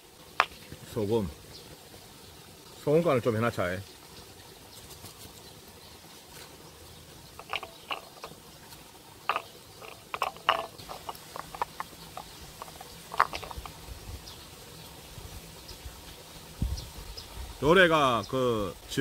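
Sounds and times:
light taps and clinks: 7.4 - 8.4, 9.3 - 13.8.

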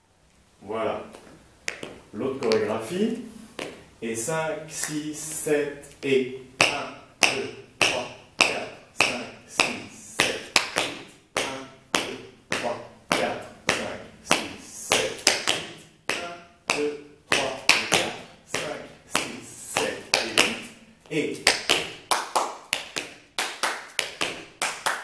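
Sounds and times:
hard-soled shoes tapping on tiles: 1.1 - 2.8, 3.5 - 3.9, 6.6 - 20.7, 21.4 - 25.0.

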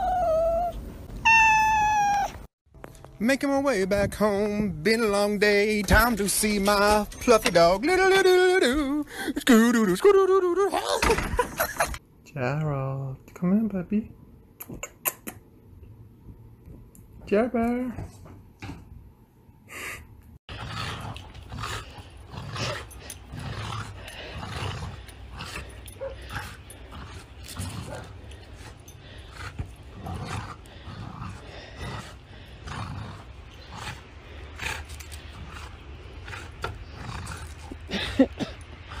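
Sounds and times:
dog growling: 20.5 - 39.0.

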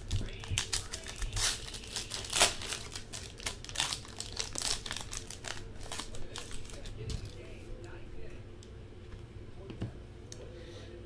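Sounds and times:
wrapper crinkling and tearing: 0.0 - 7.4.

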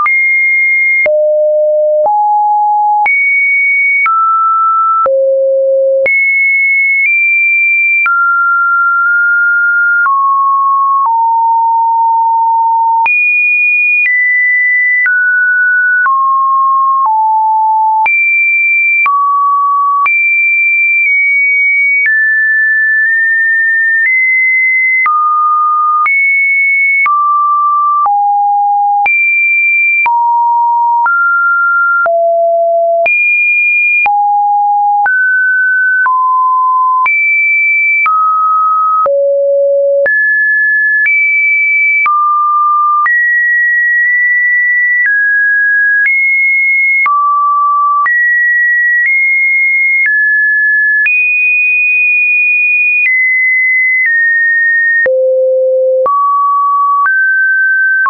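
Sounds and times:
synthesized sine tones: 38.0 - 40.4, 55.0 - 57.0.

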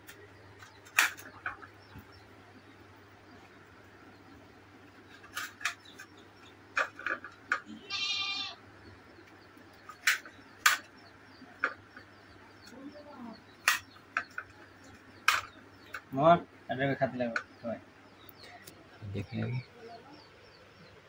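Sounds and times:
goat bleating: 7.7 - 8.6.

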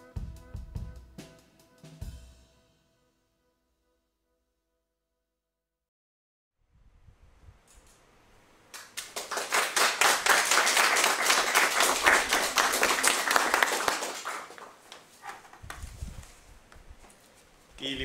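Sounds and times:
audience applauding: 8.8 - 14.8.

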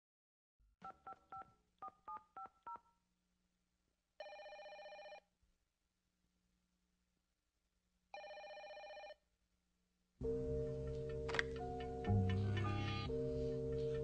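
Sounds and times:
telephone ring tone: 4.2 - 5.2, 8.2 - 9.2.

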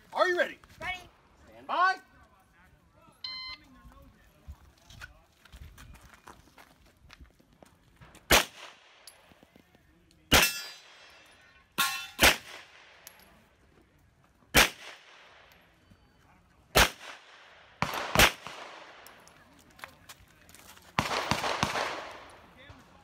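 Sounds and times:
pistol shots with echo: 8.3 - 9.2, 10.3 - 13.1, 14.5 - 15.6, 16.7 - 19.3, 21.0 - 22.6.

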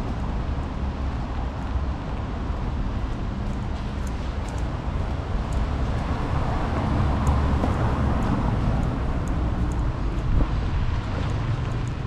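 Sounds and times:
tyres on wet roads: 0.0 - 12.0
faint light ticks: 3.1 - 4.7, 5.4 - 6.1, 7.2 - 7.4, 8.2 - 9.9, 11.1 - 12.0.

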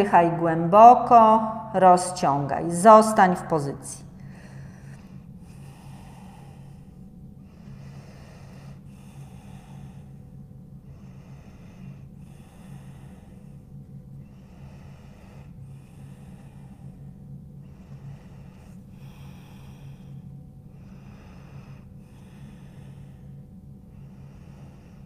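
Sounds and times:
low steady hum: 0.0 - 25.0
woman breathing deeply: 4.0 - 25.0.

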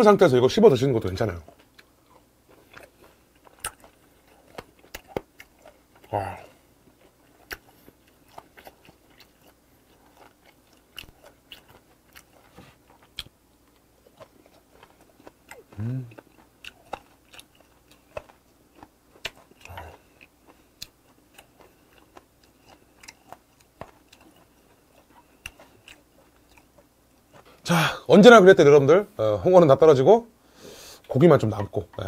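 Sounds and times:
chewing with wet mouth clicks: 1.4 - 6.1, 6.8 - 27.6
person humming mm: 6.1 - 6.6, 15.8 - 16.2, 19.6 - 20.0.

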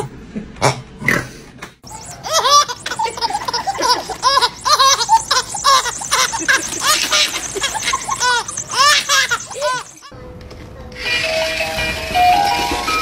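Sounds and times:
baby laughing: 1.9 - 10.1.

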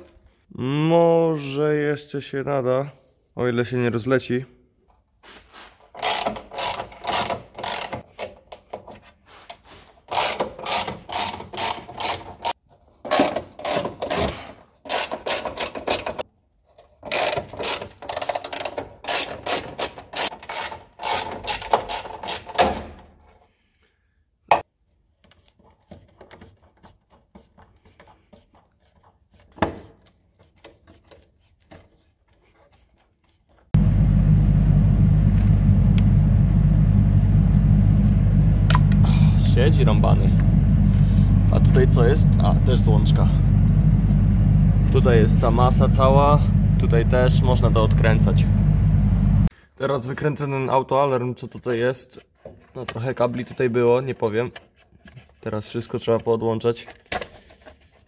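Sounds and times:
loud steady low rumble: 33.8 - 49.5.

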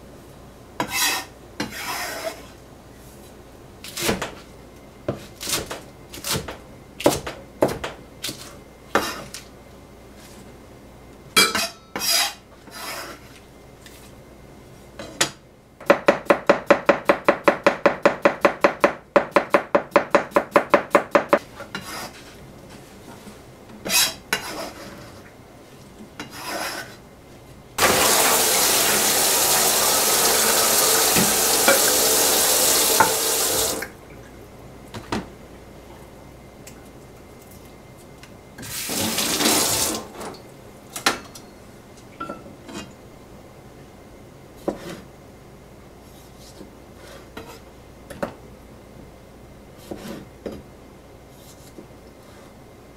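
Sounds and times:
knife chopping on plastic board: 5.1 - 8.0, 15.8 - 21.4.

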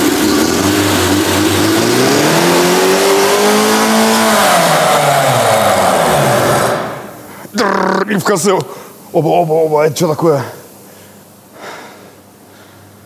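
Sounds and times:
car engine revving: 0.0 - 8.0.

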